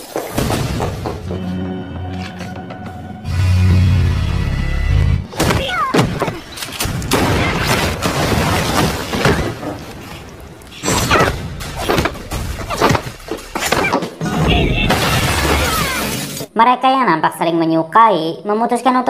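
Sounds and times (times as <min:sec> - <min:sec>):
film soundtrack music: 0:00.8 - 0:05.3
punches and thuds: 0:05.3 - 0:09.8, 0:10.9 - 0:15.8
glass shattering: 0:14.7 - 0:16.5.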